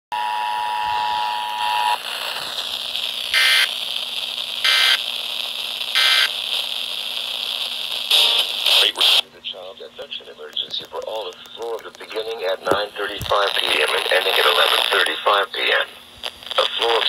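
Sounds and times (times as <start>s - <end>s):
radio hiss: 0.2s - 17.0s
digital data-burst screeches: 3.3s - 3.7s, 4.6s - 5.0s, 6.0s - 6.3s.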